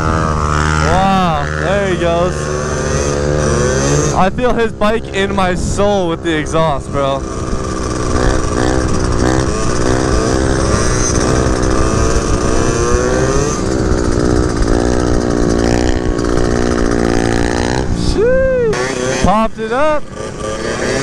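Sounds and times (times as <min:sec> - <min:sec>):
scooter engines buzzing: 0:00.0 - 0:21.0.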